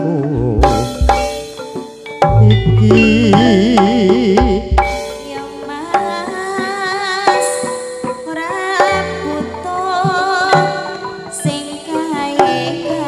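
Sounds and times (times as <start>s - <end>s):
drum strokes: 0.0s - 13.0s
keyboard: 0.0s - 13.0s
pitch-bent melody: 0.0s - 13.0s
deep bass line: 0.2s - 1.4s, 2.2s - 5.2s
woman singing with vibrato: 2.7s - 13.0s.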